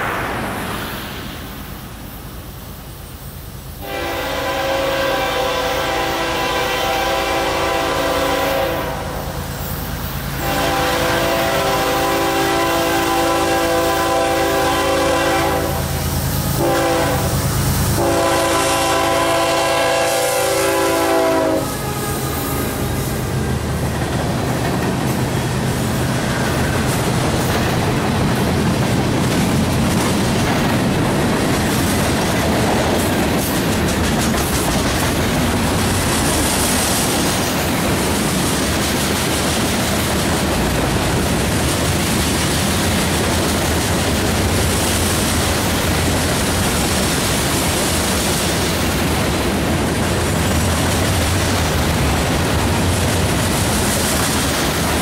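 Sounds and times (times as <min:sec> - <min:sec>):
freight train rumbling: 0:00.0 - 0:55.0
locomotive horn blasts: 0:03.8 - 0:09.4, 0:10.4 - 0:23.6
clickety-clack of wheels on rail joints: 0:09.6 - 0:55.0.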